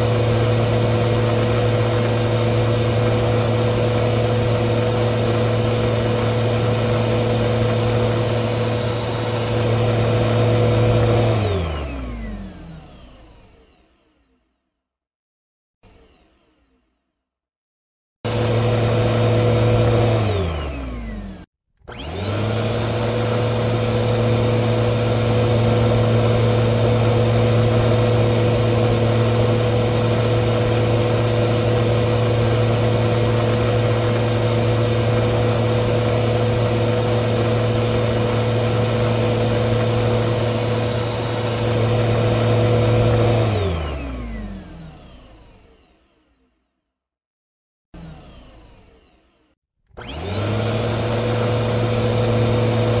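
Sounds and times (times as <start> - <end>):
vacuum cleaner motor running: 0.0 - 13.8, 18.3 - 46.4, 48.0 - 53.0.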